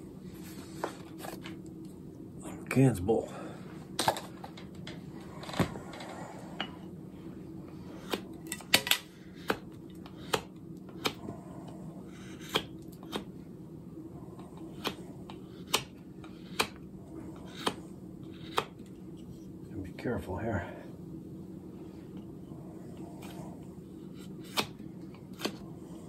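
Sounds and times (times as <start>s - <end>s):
steady low hum: 0.0s - 26.0s
knife carving wood clicks: 8.1s - 11.2s, 14.8s - 16.8s, 17.5s - 17.8s.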